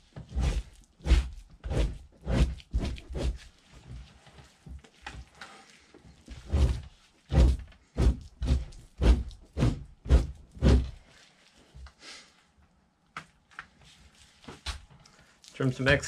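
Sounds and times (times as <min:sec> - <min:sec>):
knife scraping hide: 0:00.2 - 0:04.3, 0:05.2 - 0:11.6.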